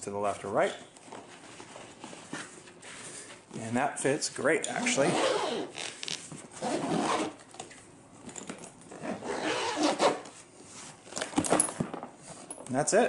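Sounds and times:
zipper being pulled closed: 4.7s - 7.4s, 8.9s - 10.3s.

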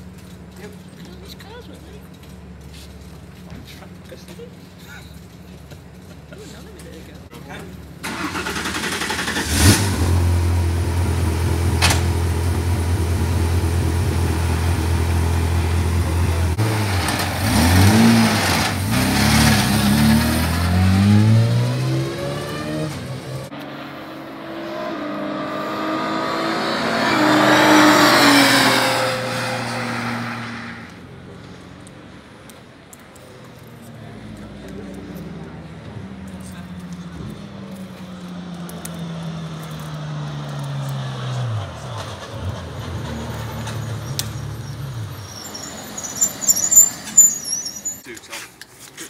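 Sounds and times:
race car engine revving: 8.0s - 30.9s.

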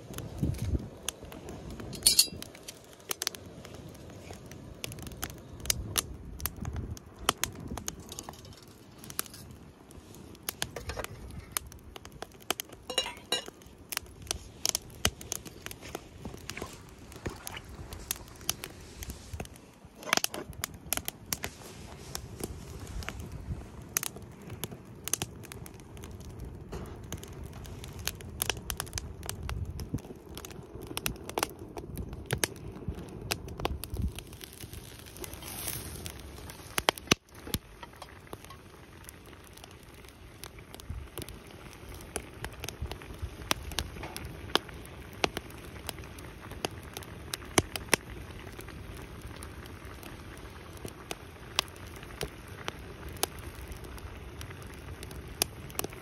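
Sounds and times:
wood fire crackling: 0.0s - 56.0s.

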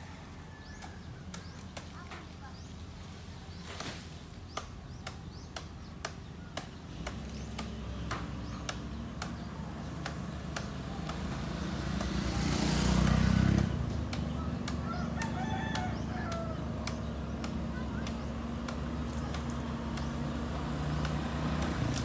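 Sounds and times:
sharp repeating tick: 4.5s - 12.3s, 13.5s - 22.0s
excavator diesel engine: 5.5s - 22.0s
motor scooter passing by: 6.9s - 22.0s.

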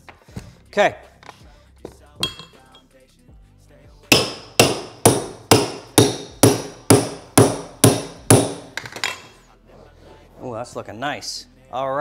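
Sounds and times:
sharp tool strikes: 4.1s - 8.8s.

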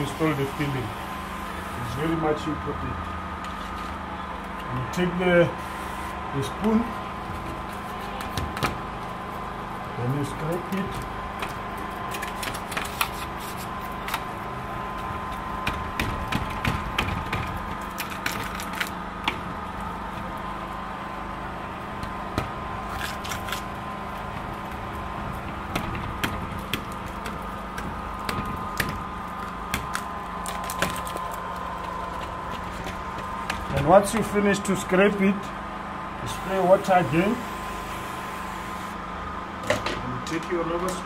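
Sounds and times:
steady hum with high tone: 0.0s - 41.0s
scraper scraping wet glass: 12.1s - 14.3s.

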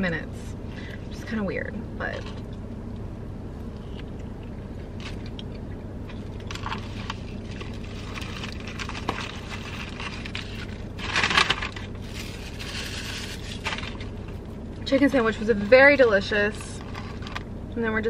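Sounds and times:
steady low hum: 0.0s - 18.0s
foil wrapper crinkling: 6.1s - 14.4s
paper bag rustling: 6.4s - 14.4s.

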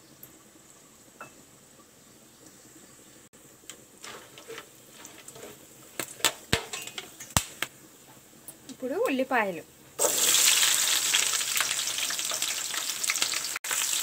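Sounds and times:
spices sizzling in oil: 0.0s - 14.0s
wooden spatula stirring in pan: 3.7s - 7.3s
crackling and sharp clicks: 6.0s - 7.7s.

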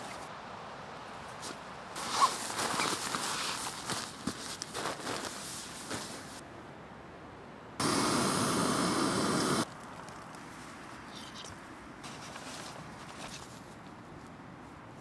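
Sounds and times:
gas stove burner hissing: 7.8s - 9.7s.

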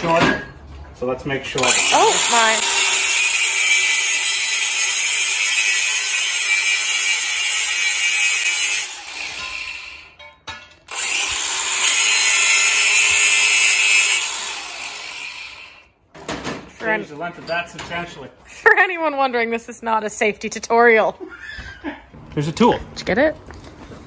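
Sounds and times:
angle grinder cutting metal: 1.6s - 10.2s, 10.9s - 15.9s.

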